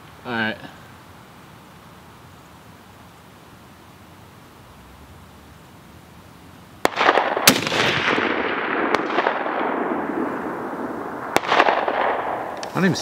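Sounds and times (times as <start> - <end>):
rifle shots: 6.8 - 13.0
rolling echo: 6.8 - 13.0.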